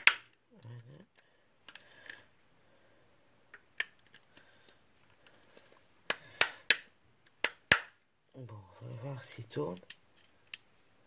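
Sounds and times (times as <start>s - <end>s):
plastic parts and batteries clicking: 0.0s - 2.3s, 3.5s - 8.0s, 9.6s - 10.7s.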